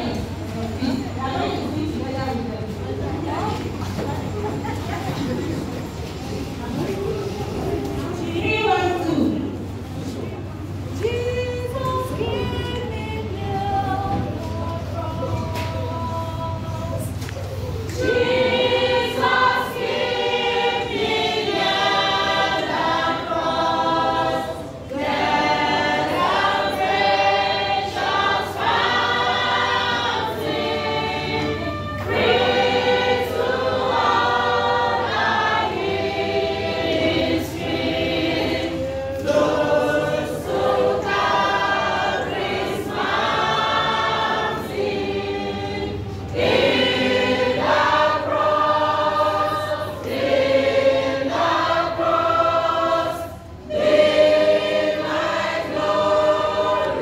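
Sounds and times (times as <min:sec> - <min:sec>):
choir singing a hymn: 0:07.5 - 0:57.0.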